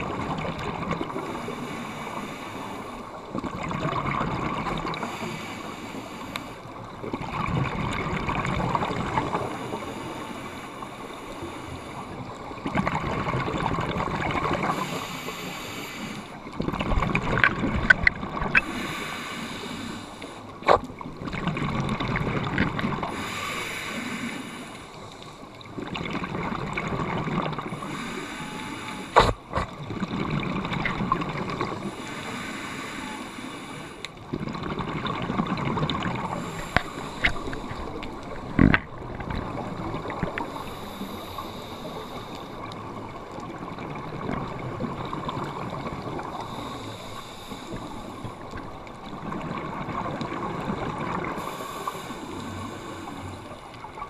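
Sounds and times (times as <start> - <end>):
regulator hissing inhalations: 14.7 - 16.4, 18.6 - 20.6, 23.1 - 25.3, 27.7 - 29.5, 31.9 - 34.1, 36.3 - 38.0, 40.4 - 42.6, 46.4 - 48.4, 51.4 - 53.6
regulator bubbling exhalations: 28.9 - 31.9, 34.4 - 41.7.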